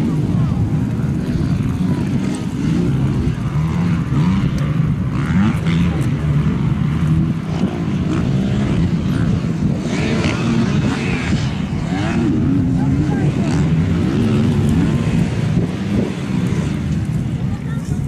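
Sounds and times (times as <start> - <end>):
motocross bike engines revving: 0.0 - 18.0
people talking: 0.0 - 18.0.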